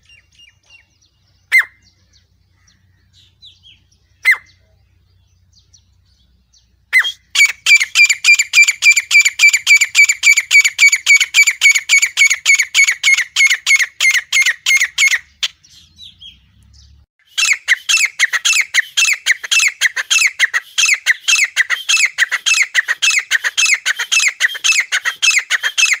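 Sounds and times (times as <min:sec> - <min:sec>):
francolin calling sharp repeated notes: 0:06.9 - 0:15.6.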